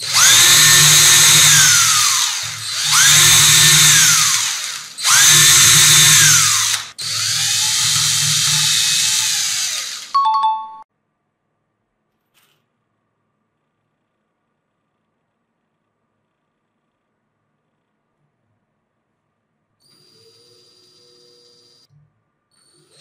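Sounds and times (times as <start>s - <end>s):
power drill drilling wood: 0.0s - 10.2s
two-tone ding: 10.2s - 10.8s.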